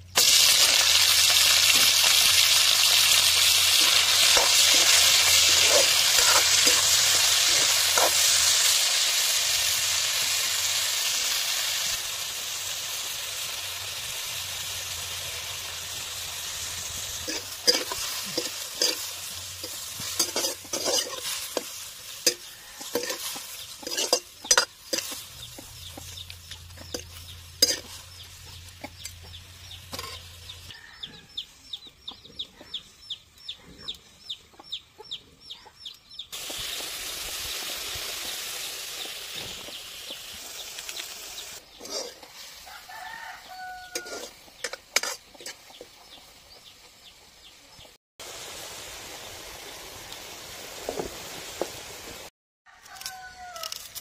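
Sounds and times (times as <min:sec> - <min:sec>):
snails sizzling in a wok: 0:00.0 - 0:30.8, 0:36.3 - 0:54.0
metal spatula scraping a pan: 0:03.2 - 0:08.8, 0:16.8 - 0:28.3, 0:29.9 - 0:30.4, 0:41.7 - 0:43.2, 0:43.8 - 0:45.8.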